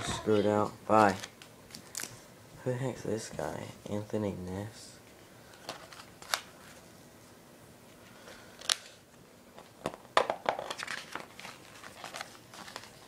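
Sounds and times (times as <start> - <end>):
paper pages being turned: 0.9 - 2.2, 10.6 - 13.0.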